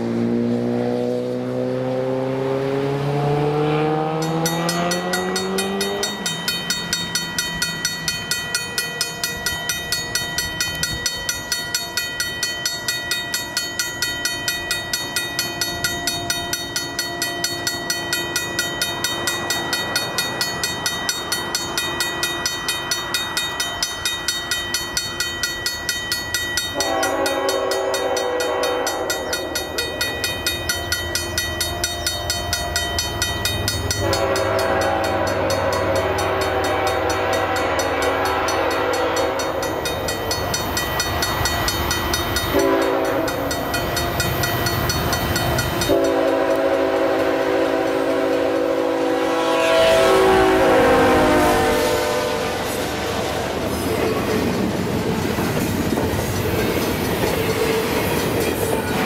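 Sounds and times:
train horn: 0.0s - 6.4s, 26.7s - 30.3s, 33.8s - 40.0s, 42.4s - 44.0s, 45.4s - 53.6s
road vehicle engine: 0.0s - 6.5s
crossing bell ringing: 2.7s - 59.0s.

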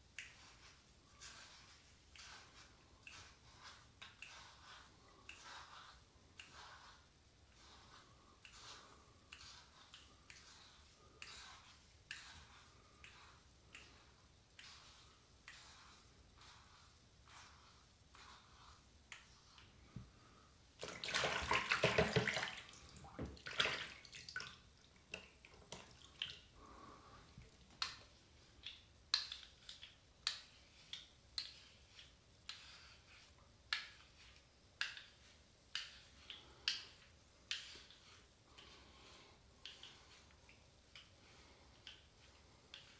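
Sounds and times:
razor scraping over scalp: 0.2s - 19.7s, 29.1s - 40.4s, 41.7s - 42.9s.

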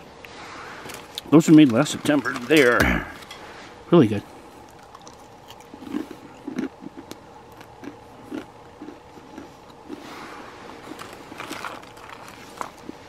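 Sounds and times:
plastic bag crinkling: 0.9s - 2.8s, 10.8s - 13.0s
crunchy chewing: 4.4s - 13.0s.

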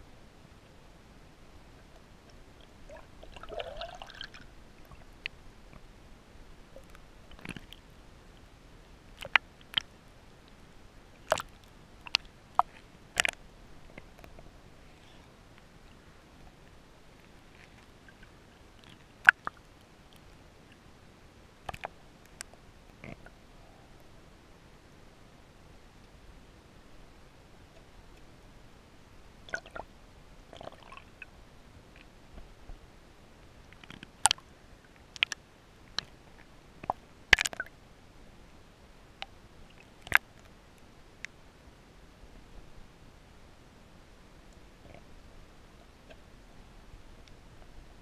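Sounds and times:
muffled water background: 0.0s - 48.0s
sharp underwater clicks and knocks: 11.2s - 14.5s, 21.6s - 23.3s, 35.1s - 36.1s, 36.8s - 37.7s, 40.0s - 40.5s.

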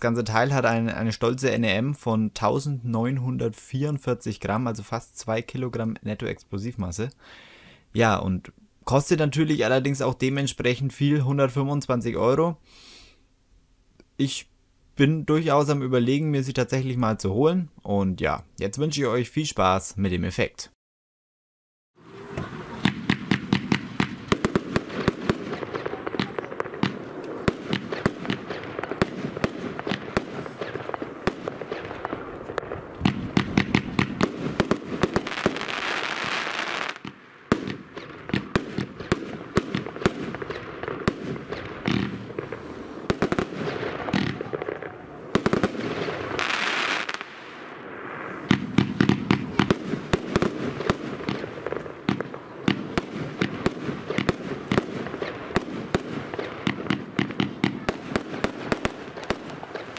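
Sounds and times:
firework hiss: 22.1s - 37.8s
firework launch thumps and bursts: 22.3s - 44.7s, 48.5s - 59.9s.

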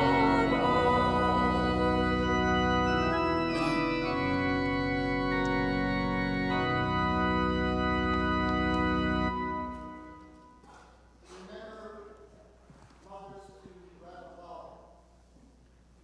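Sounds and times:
organ playing slow chords: 0.0s - 10.7s.

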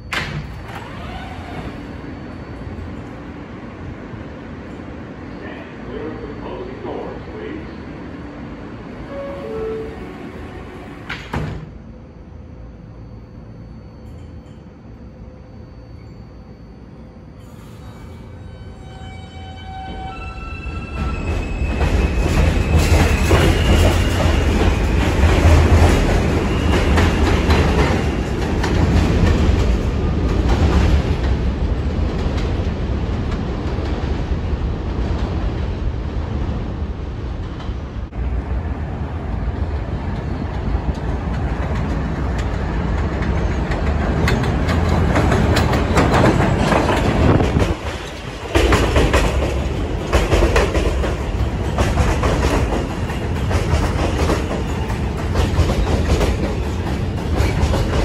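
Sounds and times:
subway train rumble and rattle: 0.0s - 58.0s
train wheels clacking over rail joints: 41.3s - 58.0s.

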